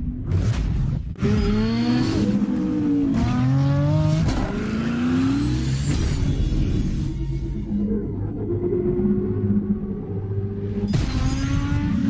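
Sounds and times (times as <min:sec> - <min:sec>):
engine revving: 0:00.2 - 0:07.2.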